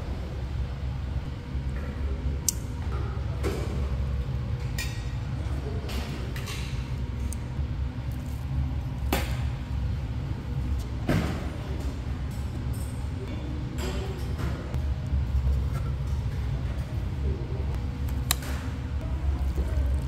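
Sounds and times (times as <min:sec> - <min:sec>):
low background rumble: 0:00.0 - 0:20.0.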